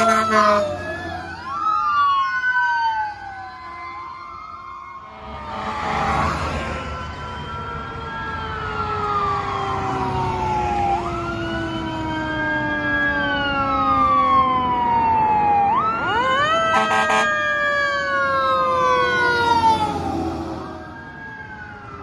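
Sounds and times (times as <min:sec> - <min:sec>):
rapid siren pulses: 0:00.0 - 0:13.6
fire engine siren wailing: 0:00.0 - 0:22.0
lower siren tone winding down: 0:00.0 - 0:22.0.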